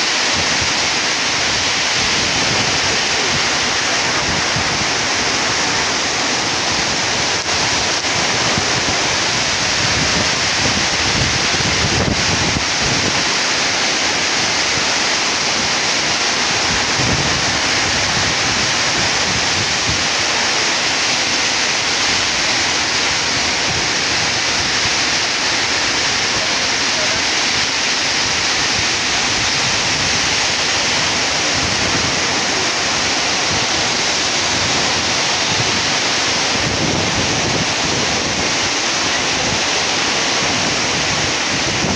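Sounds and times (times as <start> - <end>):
heavy rain pouring: 0.0 - 41.9
wind buffeting microphone: 0.3 - 13.4, 14.3 - 20.4, 28.0 - 41.9.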